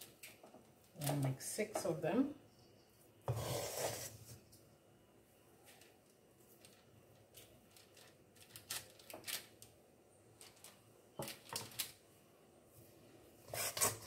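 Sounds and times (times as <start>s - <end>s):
wooden spoon scraping metal bowl: 3.3s - 4.4s, 13.5s - 14.0s.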